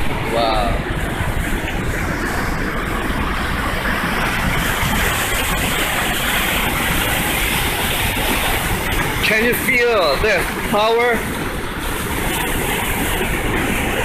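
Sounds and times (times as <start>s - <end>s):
waterfall rushing over boulders: 0.0s - 14.0s.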